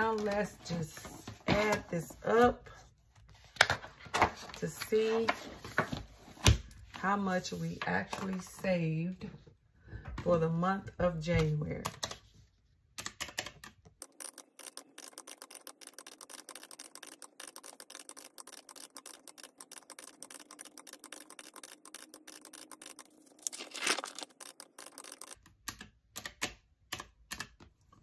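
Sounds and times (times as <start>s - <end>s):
calculator keys clicking: 13.0s - 23.4s, 24.1s - 28.0s
paper page rustling: 22.6s - 25.4s.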